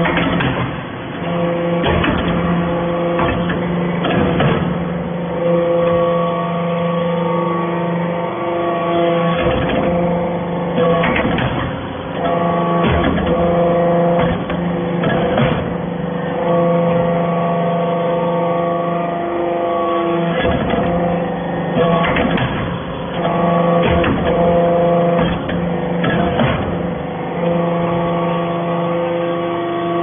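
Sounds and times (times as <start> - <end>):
press clattering and knocking: 0.0 - 4.9, 10.8 - 15.8, 21.8 - 26.9
hydraulic pump hum: 0.0 - 30.0.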